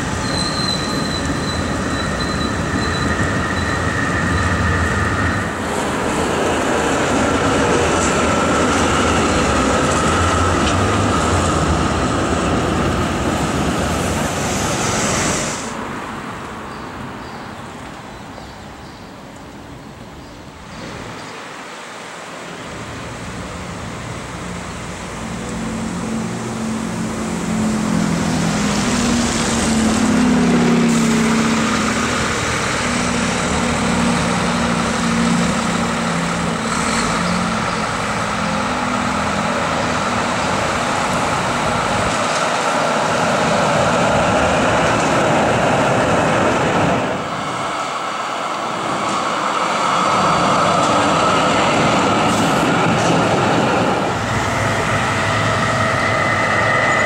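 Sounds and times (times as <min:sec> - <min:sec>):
tram rolling on street track: 0:00.0 - 0:57.0
tram thin steady whine: 0:23.6 - 0:57.0.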